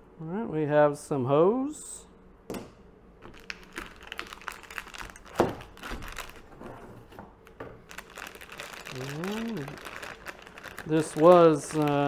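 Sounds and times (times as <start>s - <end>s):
foil bag crinkling: 3.3s - 6.8s, 7.4s - 12.0s.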